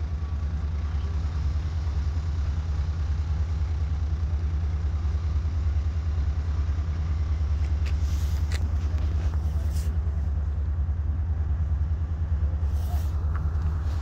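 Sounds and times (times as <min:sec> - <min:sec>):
diesel locomotive engine rumbling: 0:00.0 - 0:14.0.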